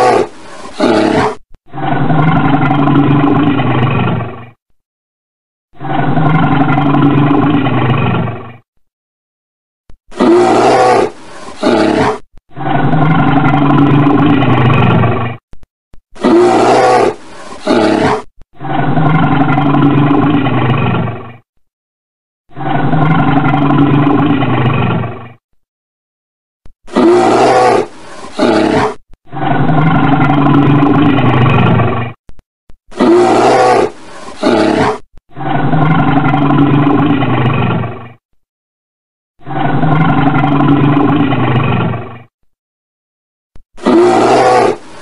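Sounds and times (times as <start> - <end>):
bear roaring: 0.0 - 4.3, 5.8 - 8.4, 10.1 - 15.0, 16.2 - 21.2, 22.5 - 25.1, 26.9 - 31.8, 32.9 - 37.8, 39.4 - 41.9, 43.8 - 45.0.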